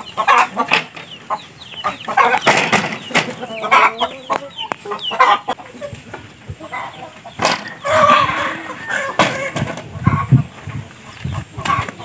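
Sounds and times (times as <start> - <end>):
chickens clucking: 0.0 - 12.0
sharp knocks: 2.4 - 3.3.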